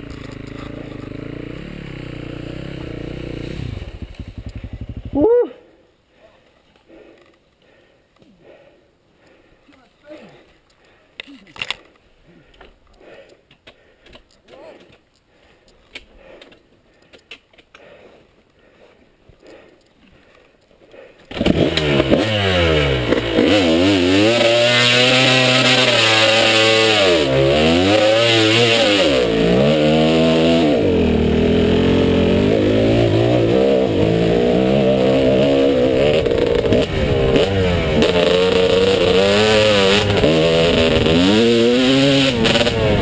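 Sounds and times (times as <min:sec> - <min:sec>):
dirt bike engine revving: 0:00.0 - 0:05.3, 0:21.3 - 0:43.0.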